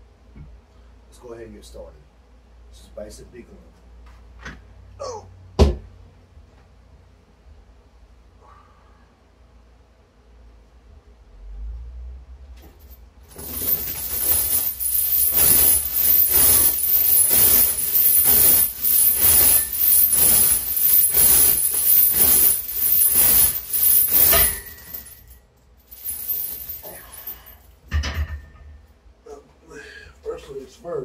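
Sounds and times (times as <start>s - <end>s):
steel chains jangling: 12.6s - 27.8s.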